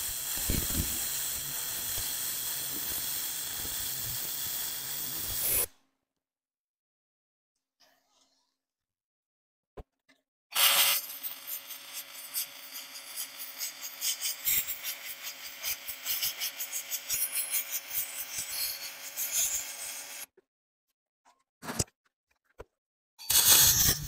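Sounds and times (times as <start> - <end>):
welding arc crackling hum: 0.0 - 5.6.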